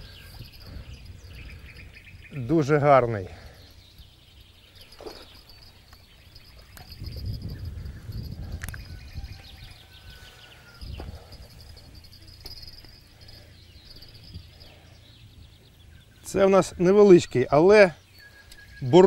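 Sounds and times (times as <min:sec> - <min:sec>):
insects chirping: 0:00.0 - 0:16.8.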